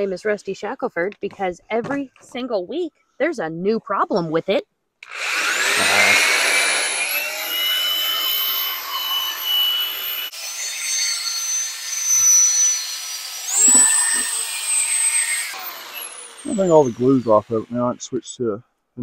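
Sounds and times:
electric drill motor whine: 5.0 - 17.5.

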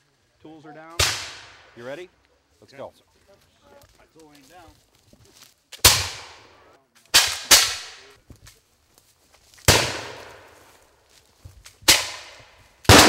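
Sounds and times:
musket shots: 1.0 - 1.8, 5.8 - 6.5, 7.1 - 8.1, 9.7 - 10.5, 11.8 - 13.0.

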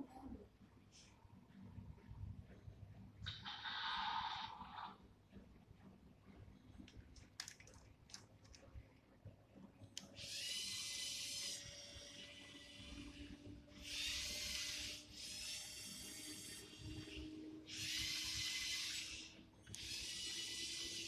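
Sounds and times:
electric motors whirring: 10.1 - 21.0.

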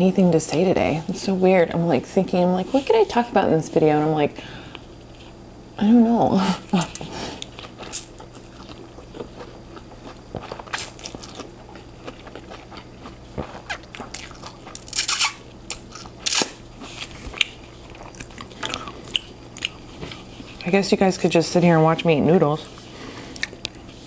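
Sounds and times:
wet chewing and crunching: 6.7 - 20.7, 21.9 - 24.0.

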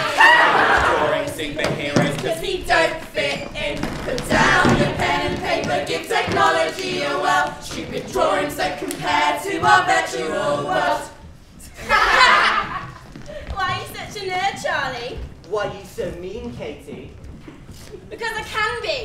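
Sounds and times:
group singing unaccompanied: 0.0 - 12.8.

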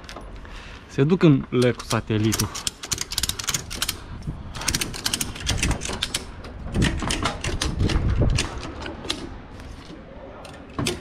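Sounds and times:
ratchet buckle clicking: 1.6 - 4.0.

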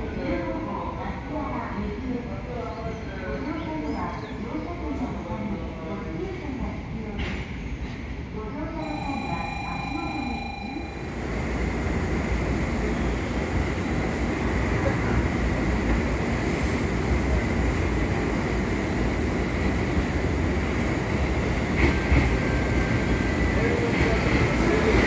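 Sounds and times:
train wheels rumbling: 11.1 - 25.0.

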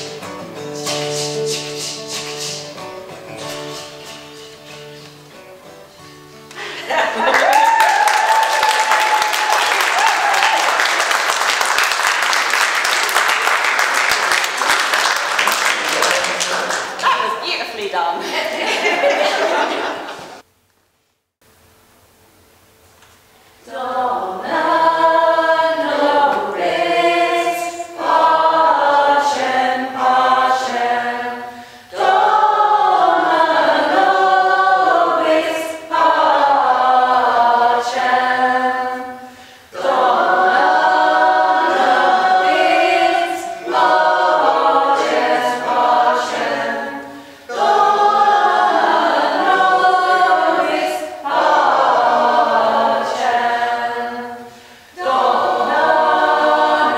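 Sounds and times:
mixed choir singing unaccompanied: 18.6 - 20.4, 23.6 - 56.9.

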